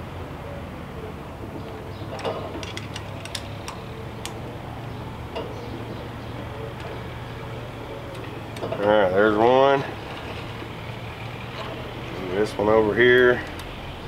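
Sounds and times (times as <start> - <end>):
steady low hum: 0.0 - 14.0
light metal clicks and taps: 2.1 - 4.4, 13.4 - 13.8.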